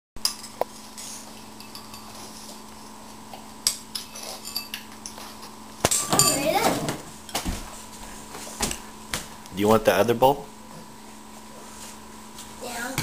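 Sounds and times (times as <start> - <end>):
spoons clinking on ceramic bowls: 1.6 - 2.3, 4.4 - 5.2, 5.9 - 6.6.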